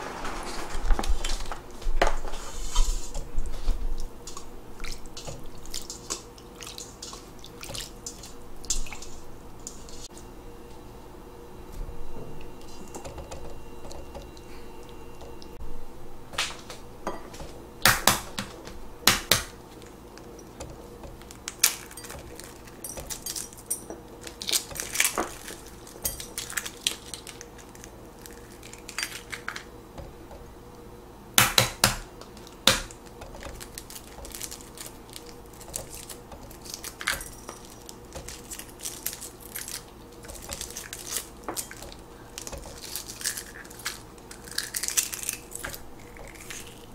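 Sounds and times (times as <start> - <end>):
eggshell tapping and crackling: 31.4 - 46.9.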